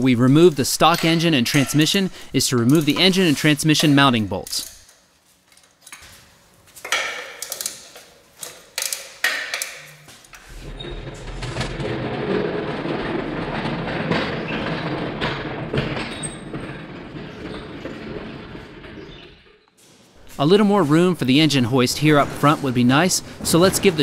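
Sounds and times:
hoist casters rolling on concrete: 0.0s - 24.0s
hand tools clicking on metal: 0.8s - 6.0s, 6.8s - 10.0s.

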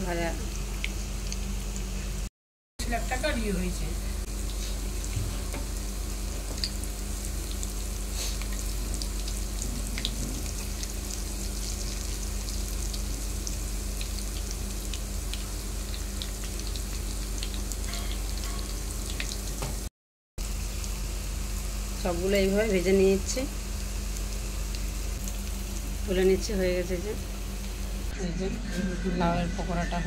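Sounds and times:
fritters sizzling in oil: 0.0s - 2.2s, 2.9s - 28.1s.

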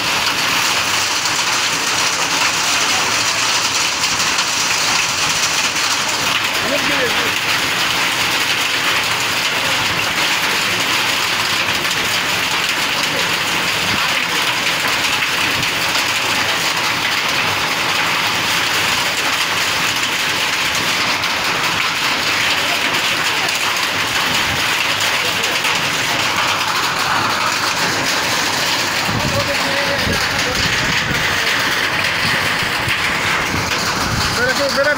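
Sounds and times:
hail and rain pelting ground: 0.0s - 34.9s.

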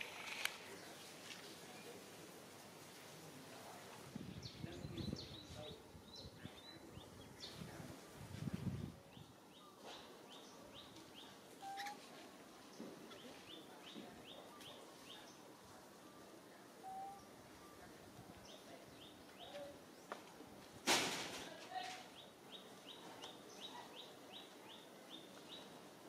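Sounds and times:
faint bird chirping: 9.0s - 20.2s.

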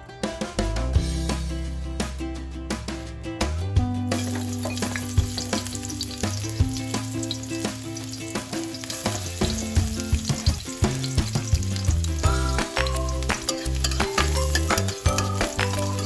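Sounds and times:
food sizzling in hot oil: 4.1s - 16.0s.

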